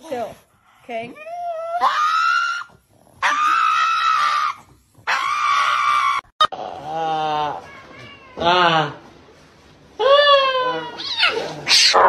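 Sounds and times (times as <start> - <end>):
dog screaming: 1.7 - 6.5, 10.4 - 12.0.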